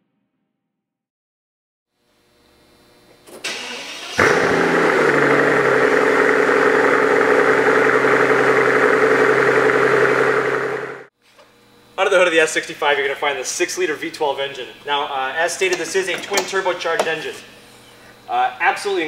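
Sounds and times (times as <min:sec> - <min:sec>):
car engine idling: 0:03.5 - 0:11.1.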